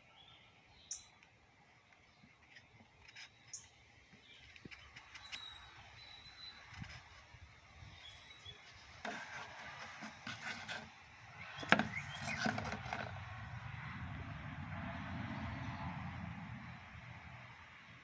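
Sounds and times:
knife scraping out of leather sheath: 0:08.4 - 0:11.0, 0:11.6 - 0:13.2.

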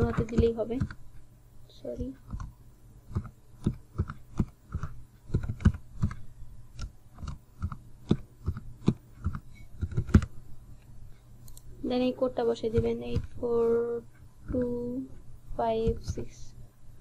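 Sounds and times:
keyboard keys tapping: 0:00.0 - 0:01.0, 0:02.0 - 0:06.2, 0:12.2 - 0:15.0, 0:15.6 - 0:16.4
faint steady hum: 0:00.0 - 0:17.0.

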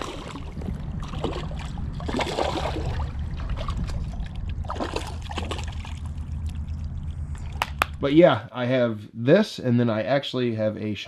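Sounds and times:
fish splashing in water: 0:00.0 - 0:07.8.

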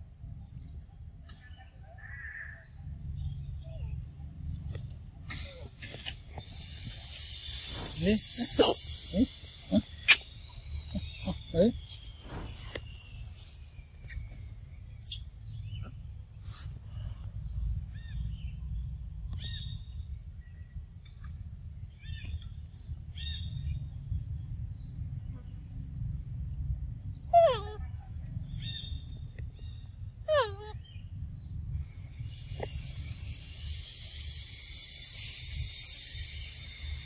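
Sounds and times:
high insect drone: 0:00.0 - 0:37.0
short bird chirps: 0:06.4 - 0:18.4.

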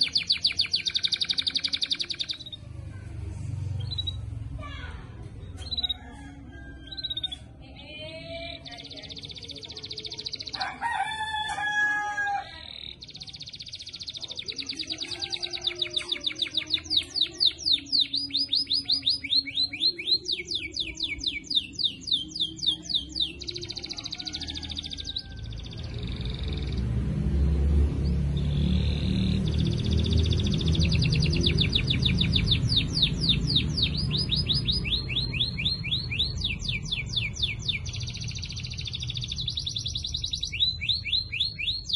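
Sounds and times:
canary singing trills: 0:00.0 - 0:02.9, 0:03.5 - 0:04.5, 0:05.6 - 0:41.9
rooster crowing: 0:05.8 - 0:07.5, 0:10.6 - 0:12.6, 0:23.6 - 0:26.2.

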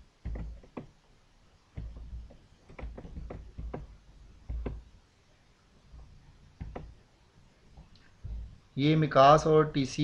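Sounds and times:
dull clicks and knocks: 0:00.2 - 0:01.0, 0:01.7 - 0:04.9, 0:06.0 - 0:07.0.

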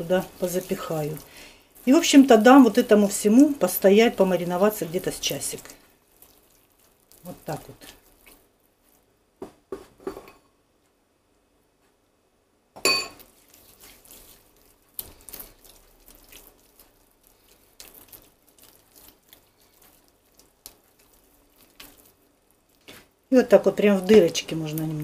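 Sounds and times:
hands squelching marinade into meat: 0:00.0 - 0:09.1, 0:13.2 - 0:25.0
spoon clinking against ceramic bowl: 0:12.8 - 0:13.2.

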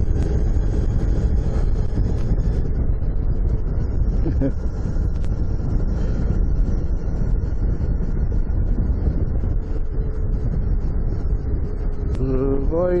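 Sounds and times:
motorcycle engine running: 0:00.0 - 0:13.0
wind rushing over microphone: 0:00.0 - 0:13.0.

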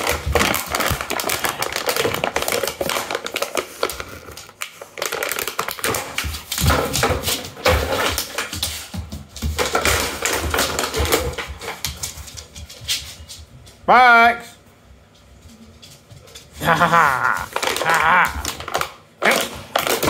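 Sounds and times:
dog chewing plastic bottle: 0:00.0 - 0:08.8, 0:17.5 - 0:20.0.

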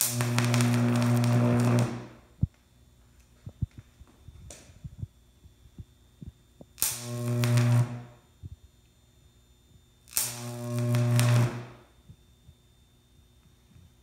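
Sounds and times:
electric arc buzzing: 0:00.0 - 0:02.6, 0:04.4 - 0:08.6, 0:10.0 - 0:12.2
faint electric snaps: 0:00.0 - 0:09.0, 0:10.0 - 0:12.6.

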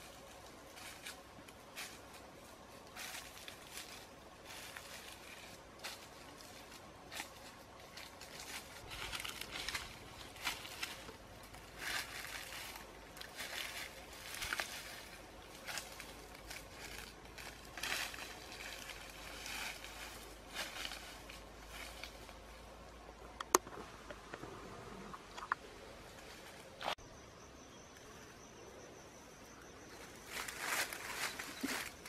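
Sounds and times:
footsteps crunching through dry leaves: 0:00.0 - 0:22.8, 0:29.9 - 0:32.0.

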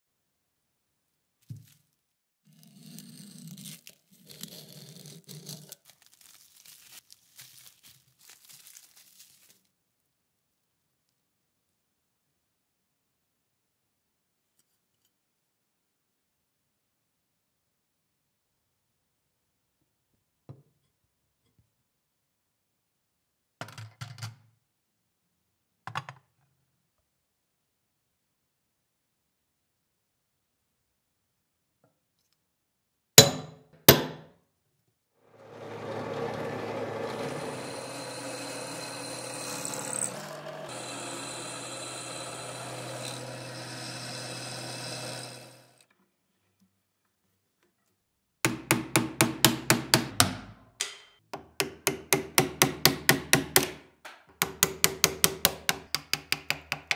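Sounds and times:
plastic wrap crinkling: 0:01.4 - 0:10.0
knife slitting plastic wrap: 0:02.5 - 0:09.7.

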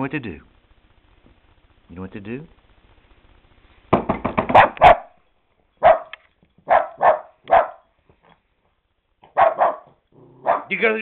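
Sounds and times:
small dog barking: 0:04.5 - 0:05.2, 0:05.8 - 0:07.9, 0:09.2 - 0:10.7.

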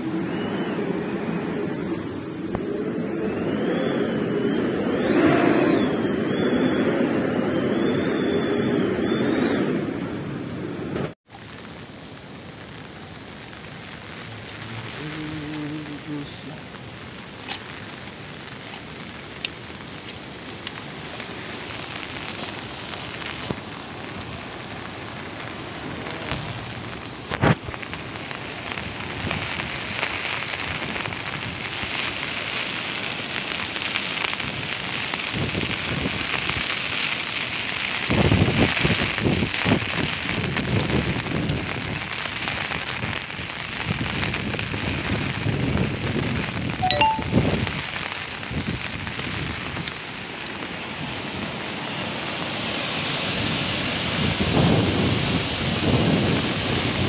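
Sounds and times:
heavy rain hissing: 0:11.3 - 0:57.0
wind buffeting microphone: 0:34.4 - 0:36.7, 0:38.0 - 0:50.0, 0:53.3 - 0:57.0.

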